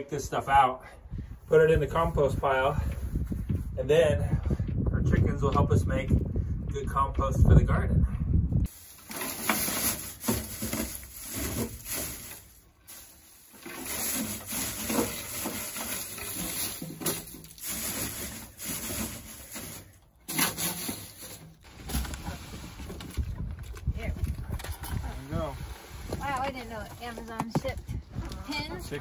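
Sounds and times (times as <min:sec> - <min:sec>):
straw rustling against wood: 0:08.7 - 0:27.7.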